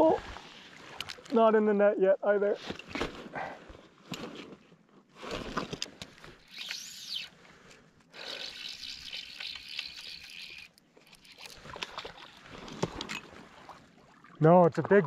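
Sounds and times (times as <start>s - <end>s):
fishing reel drag whirring: 6.4s - 7.5s, 8.1s - 13.2s.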